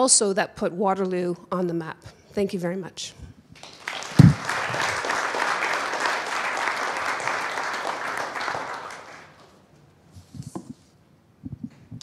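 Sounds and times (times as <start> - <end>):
audience applauding: 3.6 - 9.5
microphone set down thump: 4.2 - 4.4.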